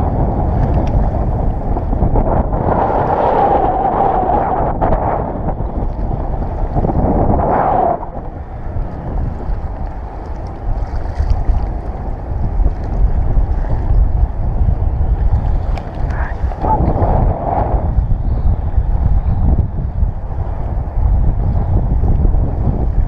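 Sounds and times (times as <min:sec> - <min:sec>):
choppy sea water: 0:00.0 - 0:23.0
wind buffeting microphone: 0:00.0 - 0:23.0
steady whirring: 0:11.6 - 0:23.0.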